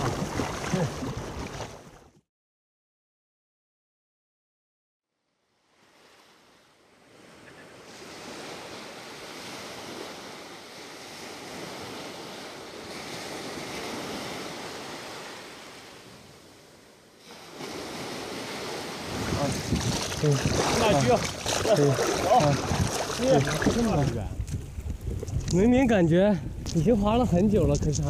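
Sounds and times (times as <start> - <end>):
sea waves washing: 0.0 - 2.0, 5.6 - 24.3
wind buffeting microphone: 19.0 - 28.0.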